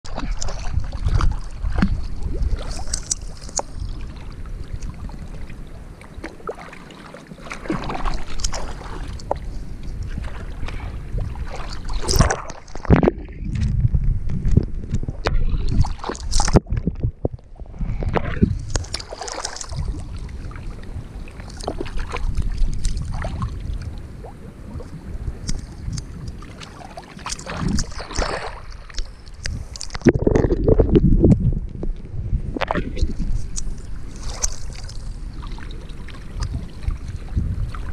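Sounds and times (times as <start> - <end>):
water splashing and sloshing: 0.0 - 37.9.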